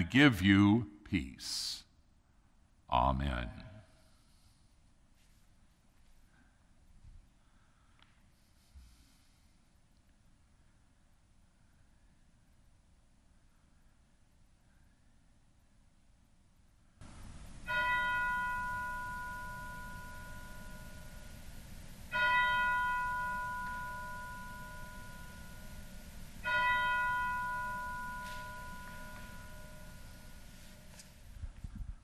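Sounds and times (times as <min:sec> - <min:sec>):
bell ringing: 0:17.4 - 0:31.0.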